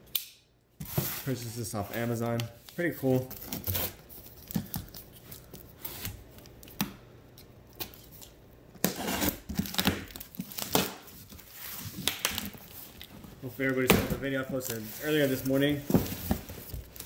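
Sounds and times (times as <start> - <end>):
packing tape ripping: 7.8 - 12.8.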